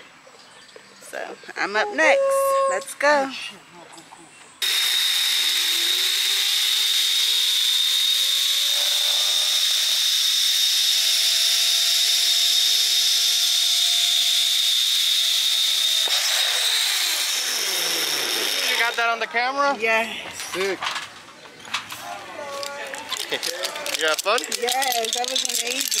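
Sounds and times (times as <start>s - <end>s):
zip line pulleys whirring: 4.6s - 19.1s, 22.6s - 26.0s.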